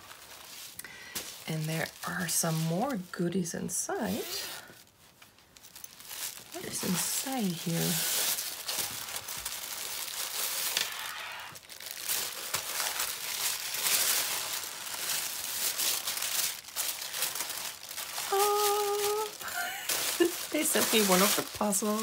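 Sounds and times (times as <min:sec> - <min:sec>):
tissue paper rustling and crinkling: 0:00.0 - 0:22.0.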